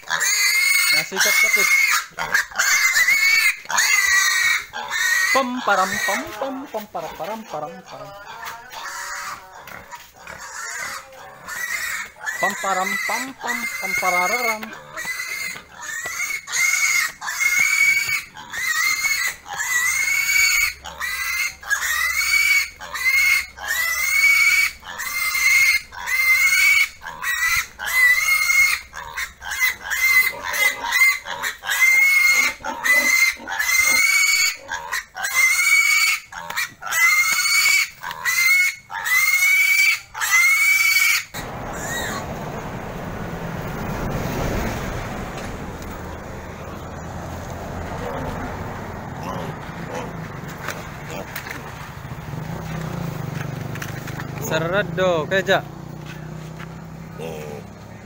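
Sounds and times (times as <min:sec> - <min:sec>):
piglet squealing: 0:00.0 - 0:42.3.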